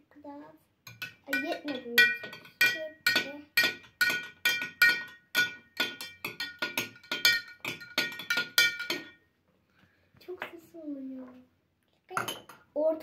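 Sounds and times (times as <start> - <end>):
teaspoon clinking against glass jar: 0.9 - 9.2.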